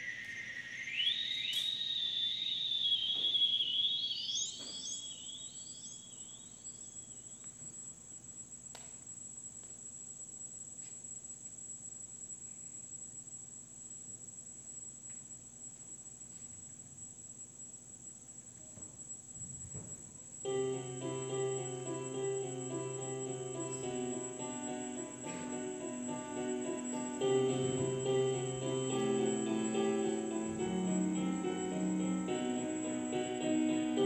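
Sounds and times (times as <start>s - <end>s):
electronic tones gliding upward: 0.0s - 7.2s, 20.5s - 34.0s.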